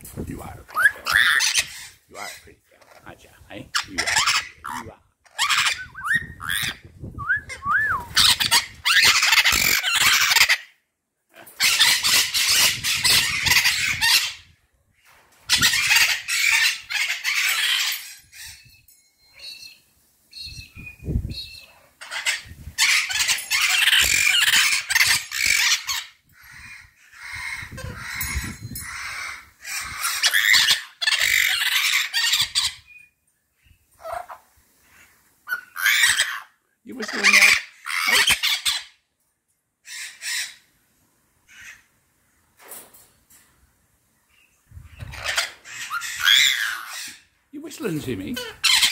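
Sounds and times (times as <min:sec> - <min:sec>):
parrots squawking: 0:00.4 - 0:06.8, 0:07.5 - 0:10.8, 0:11.4 - 0:14.5, 0:15.5 - 0:18.7, 0:22.0 - 0:33.0, 0:34.0 - 0:39.0, 0:39.8 - 0:40.7, 0:41.5 - 0:41.9, 0:45.0 - 0:47.3, 0:48.2 - 0:48.9.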